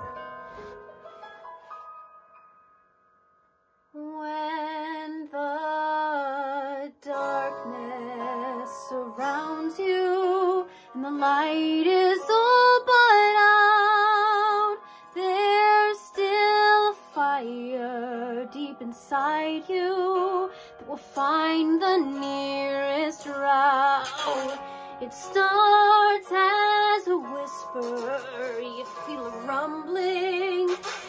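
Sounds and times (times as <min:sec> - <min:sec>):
soft instrumental backing: 0:00.0 - 0:03.2, 0:07.0 - 0:31.0
person singing with vibrato: 0:21.8 - 0:25.6, 0:26.2 - 0:31.0.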